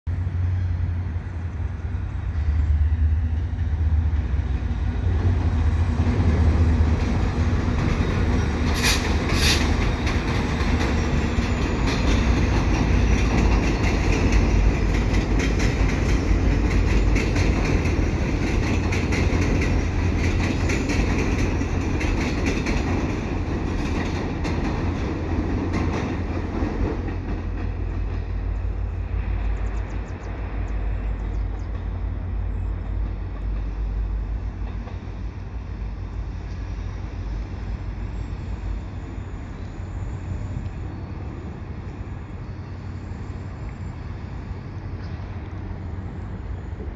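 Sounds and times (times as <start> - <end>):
train rumbling over bridge: 0.0 - 46.9
wheels clicking over rail joints: 4.5 - 29.6.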